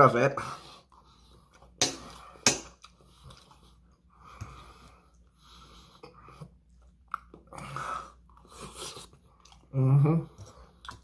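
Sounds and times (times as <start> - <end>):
soft eating sounds: 0.3 - 11.0
person breathing: 0.4 - 6.6, 7.5 - 9.0.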